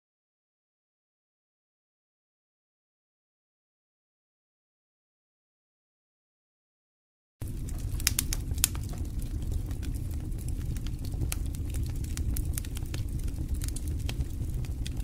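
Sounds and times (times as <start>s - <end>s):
low rumble: 7.4s - 15.0s.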